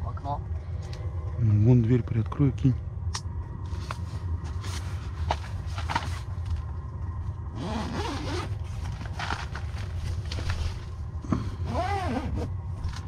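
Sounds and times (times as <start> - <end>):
steady low hum: 0.0 - 13.0
tent zipper being pulled open: 7.6 - 8.6, 11.6 - 12.5.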